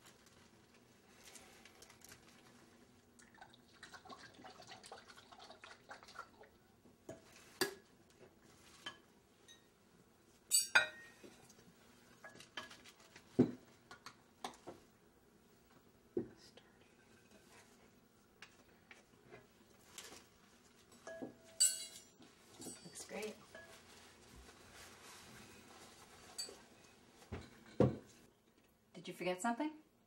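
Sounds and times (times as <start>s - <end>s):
tableware clinking and scraping: 10.5s - 11.4s, 20.9s - 23.9s, 26.2s - 28.1s.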